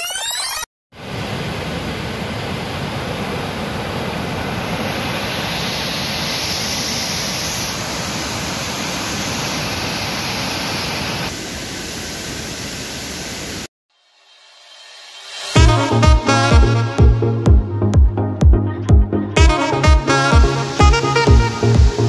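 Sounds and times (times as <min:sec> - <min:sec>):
waterfall rushing: 0:01.0 - 0:13.7.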